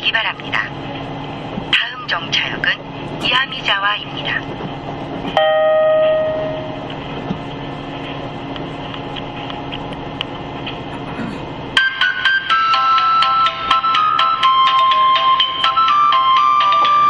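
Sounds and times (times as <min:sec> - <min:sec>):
train running noise: 0:00.0 - 0:17.0
chime melody over train pa: 0:05.4 - 0:06.9, 0:11.8 - 0:17.0
single chime tone: 0:05.4 - 0:06.9.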